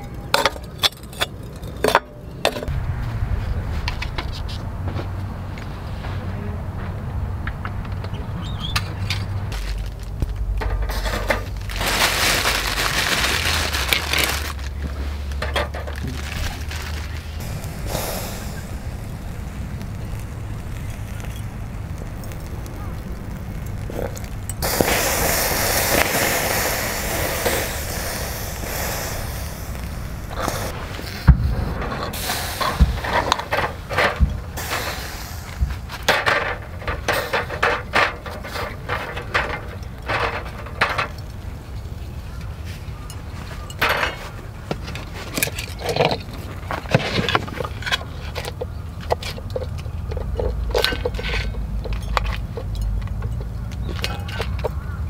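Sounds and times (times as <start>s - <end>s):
low steady rumble: 0.0s - 43.8s
shellfish sizzling on grill: 9.5s - 41.8s, 47.5s - 54.5s
sharp pops: 16.1s - 38.5s.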